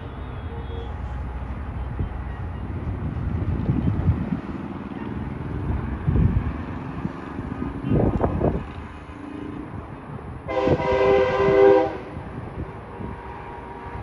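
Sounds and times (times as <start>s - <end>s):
road traffic rumble: 0.0s - 14.0s
multi-tone air horn blast: 10.5s - 12.1s.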